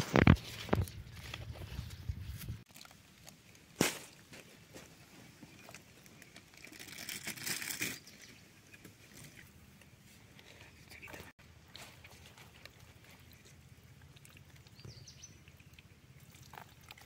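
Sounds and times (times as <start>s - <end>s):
dry leaves crinkling: 5.6s - 8.4s, 11.6s - 14.1s.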